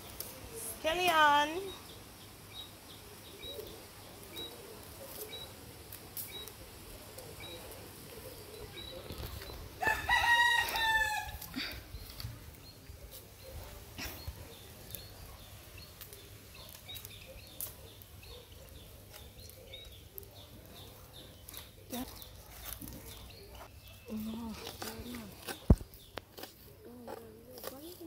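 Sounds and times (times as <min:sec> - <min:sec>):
faint bird chirps: 0:01.7 - 0:06.6
rooster crowing: 0:09.8 - 0:11.4.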